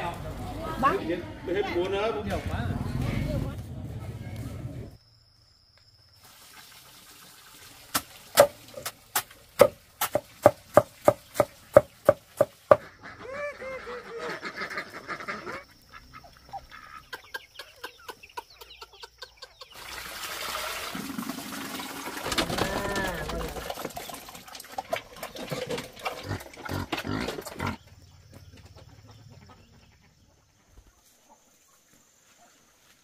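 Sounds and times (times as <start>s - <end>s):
fowl calling: 12.7s - 19.7s.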